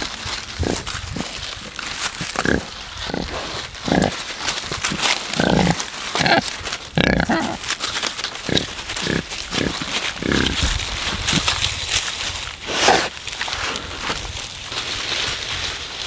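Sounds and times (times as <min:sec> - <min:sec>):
pigs grunting: 0:00.0 - 0:11.6, 0:12.6 - 0:13.2
rustling in grass and leaves: 0:00.0 - 0:16.0.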